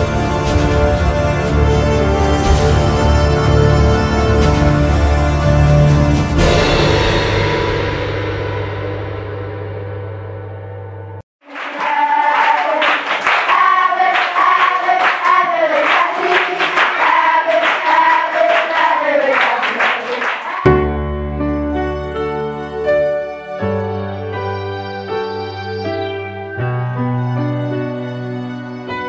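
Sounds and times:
voices singing: 0:11.5 - 0:20.7
sustained piano-like music: 0:20.7 - 0:29.0.

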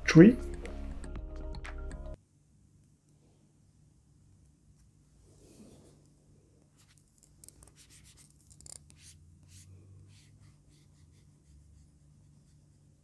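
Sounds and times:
stylus scratching on screen: 0:06.8 - 0:13.0.

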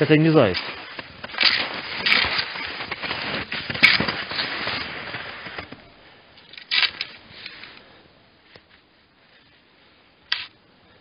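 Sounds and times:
skis scraping through snow: 0:00.0 - 0:05.8.

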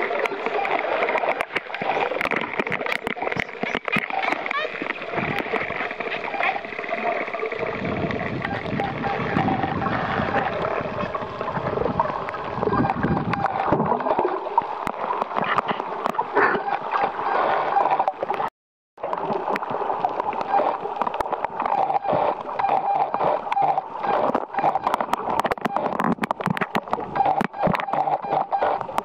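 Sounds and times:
underwater sloshing and gurgling: 0:00.0 - 0:29.0
crackle of small clicks: 0:00.1 - 0:06.5, 0:18.1 - 0:29.0.

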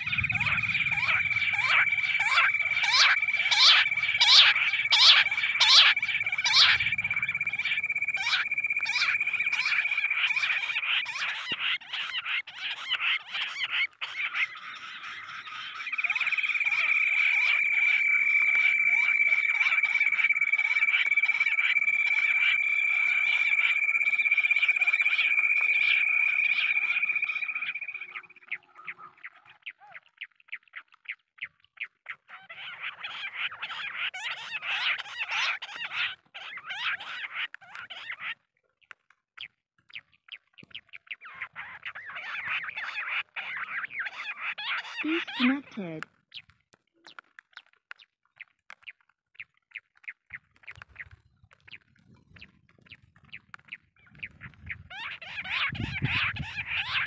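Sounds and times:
quail call through small speaker: 0:00.0 - 0:30.1, 0:41.3 - 0:46.0, 0:54.2 - 0:57.0.

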